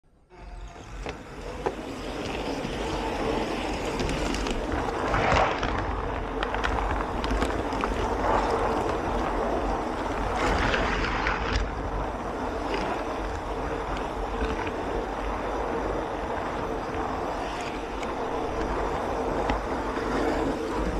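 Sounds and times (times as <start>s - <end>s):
faint steady hum: 0.0s - 20.9s
model train rumbling on track: 0.3s - 10.4s.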